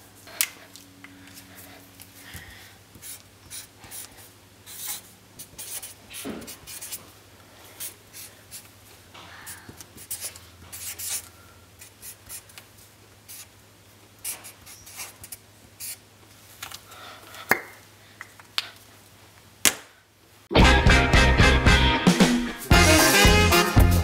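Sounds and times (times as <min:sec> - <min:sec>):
marker scratching on paper: 0:03.0 - 0:07.1, 0:07.8 - 0:08.7, 0:09.9 - 0:12.5, 0:13.3 - 0:13.5, 0:14.2 - 0:16.0.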